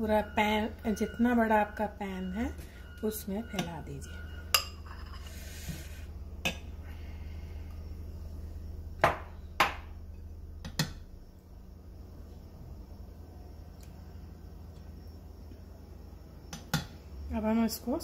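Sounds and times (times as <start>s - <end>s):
low hum: 0.0s - 18.0s
spoon clinking against bowl: 4.5s - 5.3s
spoon scraping pan: 4.6s - 6.0s.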